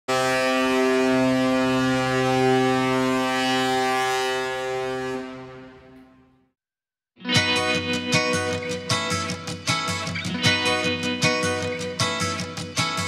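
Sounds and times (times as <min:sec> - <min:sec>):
ship's horn blast: 0:00.1 - 0:06.3.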